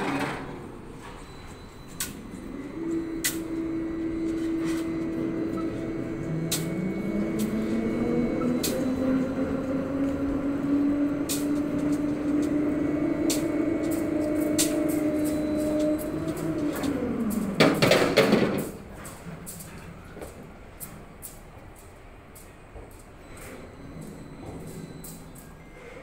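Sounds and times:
crane hoist whining: 0.0s - 26.0s
rising tone: 1.2s - 17.6s.

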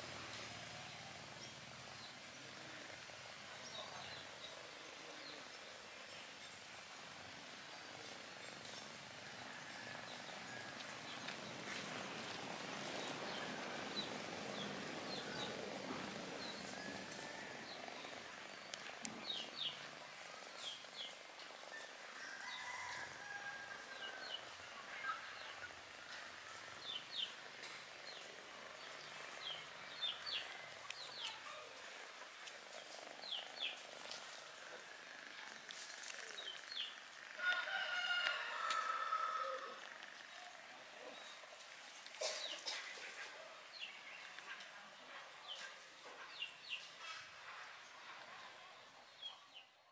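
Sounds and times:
steady low hiss: 0.0s - 49.1s
small birds chirping: 26.7s - 37.4s.

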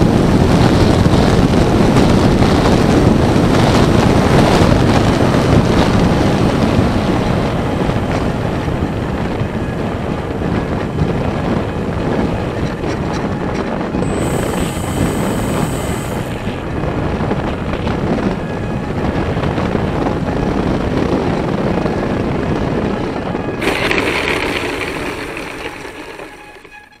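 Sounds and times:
model plane propeller rushing: 13.9s - 17.4s, 23.6s - 27.0s
bright hiss: 14.1s - 16.4s.

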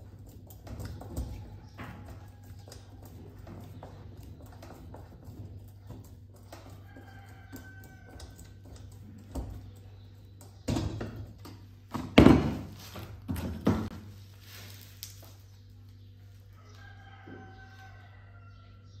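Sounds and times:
metal knocks and clanks: 0.0s - 14.0s.

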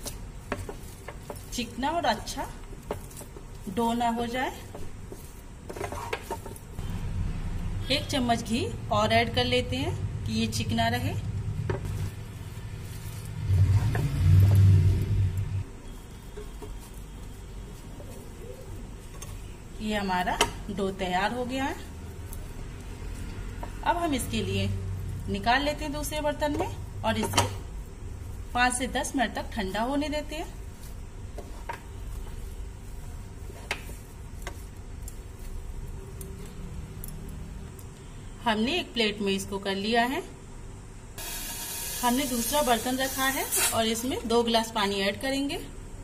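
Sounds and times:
spatula stirring thick dough: 0.0s - 7.0s, 15.6s - 26.7s, 27.5s - 36.2s
wooden spatula scraping frying pan: 4.7s - 6.7s
low rumble: 10.0s - 15.7s.

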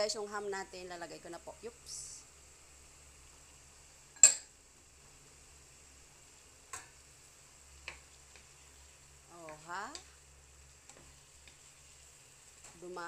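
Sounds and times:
wooden spatula tapping frying pan: 7.8s - 8.6s, 9.4s - 10.1s, 10.8s - 11.7s.

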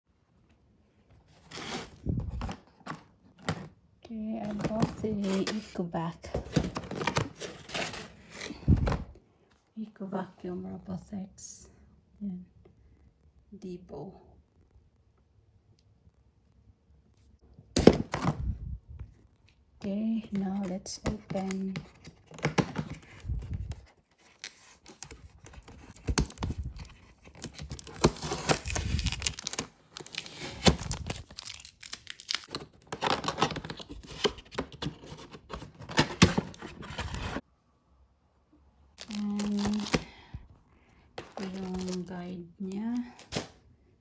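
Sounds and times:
packaging ripping and crinkling: 24.1s - 34.4s, 39.0s - 40.1s, 41.2s - 42.2s.

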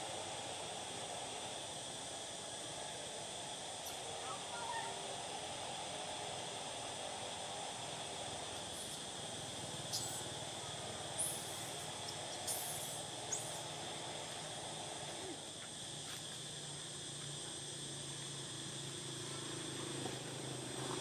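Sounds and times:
insect drone: 0.0s - 21.0s.

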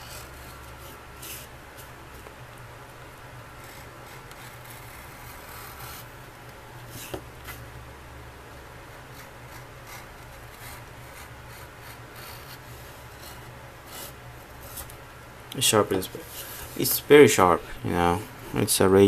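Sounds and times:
knife shaving leather: 3.6s - 6.1s, 9.0s - 14.2s.

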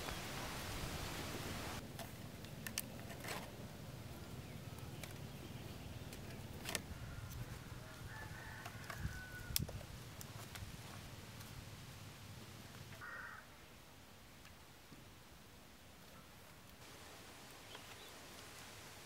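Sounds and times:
light clicks of bamboo and wood: 1.9s - 3.5s, 4.8s - 5.3s, 6.0s - 11.6s
faint bird call: 12.9s - 13.7s.

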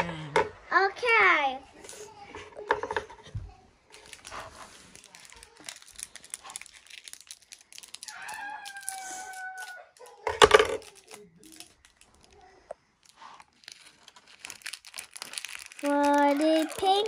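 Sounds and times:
plastic packet crinkling: 3.9s - 17.0s
scissors snipping plastic: 15.2s - 17.0s.

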